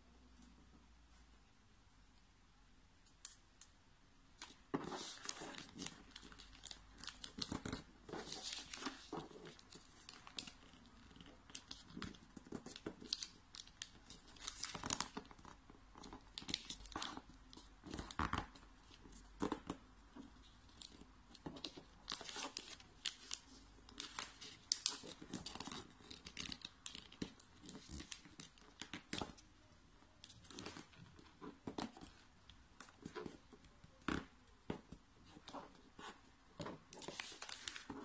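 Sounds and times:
paper rustling and crinkling: 4.4s - 29.4s, 34.2s - 38.0s.

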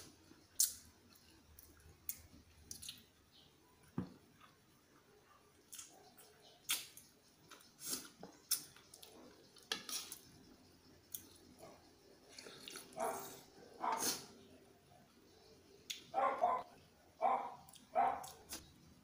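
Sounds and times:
chewing and slurping: 12.2s - 14.4s.

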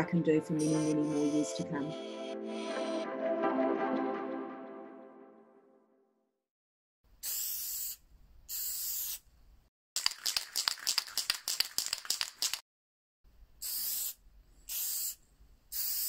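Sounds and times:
spray can mixing ball rattling: 7.2s - 9.2s, 10.0s - 12.6s, 13.6s - 16.0s
spray paint can spraying: 7.2s - 9.2s, 10.0s - 12.6s, 13.6s - 16.0s.

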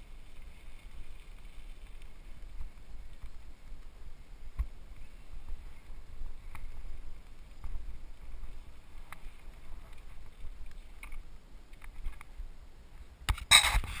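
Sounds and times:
bike rolling low rumble: 0.0s - 13.3s
bike clicks and rattles: 13.3s - 14.0s.

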